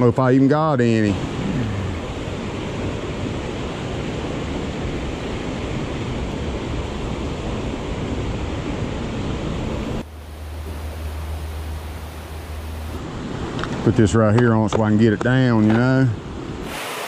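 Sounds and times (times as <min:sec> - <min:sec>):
creek water rushing over rocks: 0:10.0 - 0:13.9, 0:16.6 - 0:17.0.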